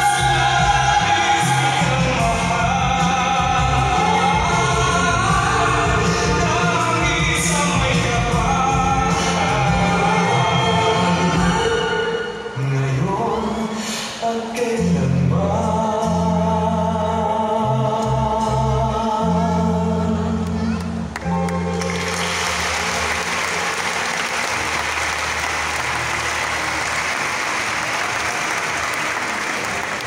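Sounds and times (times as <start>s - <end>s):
dance music with choir vocals: 0.0s - 20.4s
audience applause: 21.1s - 30.0s.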